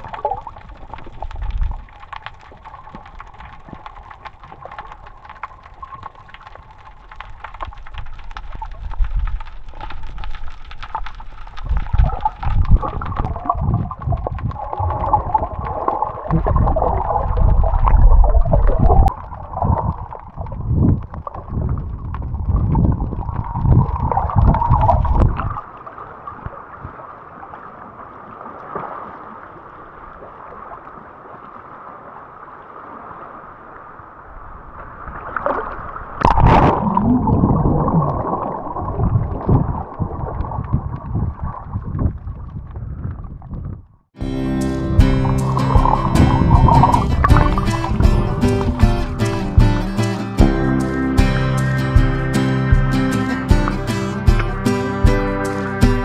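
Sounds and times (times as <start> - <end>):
wind buffeting microphone: 11.6 - 25.6, 35.8 - 44.0, 44.8 - 51.2
steady rushing background: 44.2 - 56.0.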